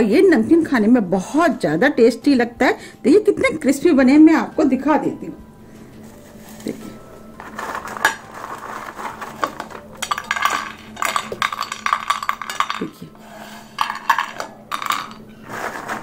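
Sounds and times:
chickpeas clattering on ceramic plate: 7.4 - 13.1, 13.8 - 16.0.

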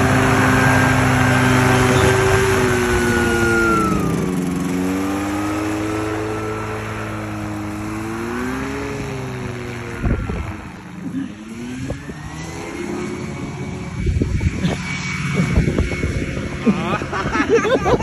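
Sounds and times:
paramotor engine and propeller: 0.0 - 18.0
wind gusts on microphone: 9.0 - 10.8, 13.4 - 18.0.

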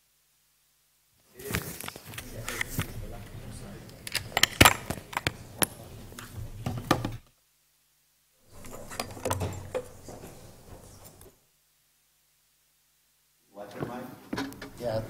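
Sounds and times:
knocks and clunks of handling: 1.5 - 7.3, 8.5 - 11.4.

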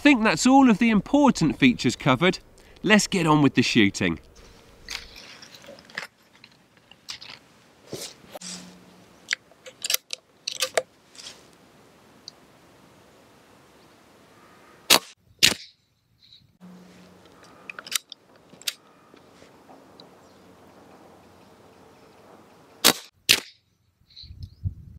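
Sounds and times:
air rifle shots cracking: 14.9 - 15.7, 22.8 - 23.6.

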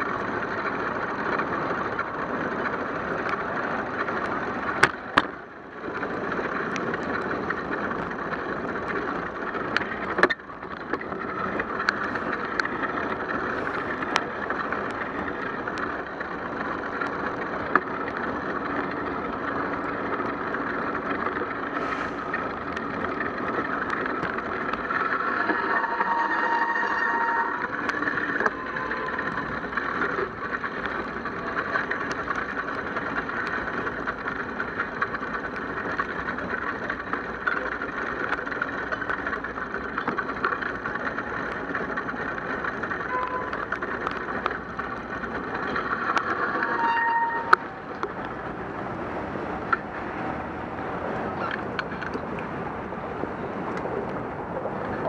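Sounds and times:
tyres hissing on wet road: 13.4 - 14.0, 21.7 - 22.6.

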